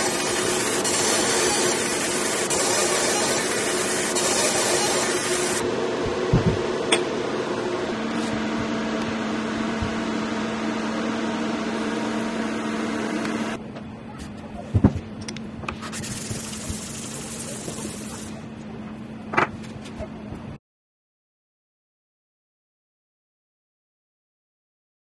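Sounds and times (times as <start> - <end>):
laser engraver humming: 0.0 - 13.6
fan noise: 0.0 - 20.6.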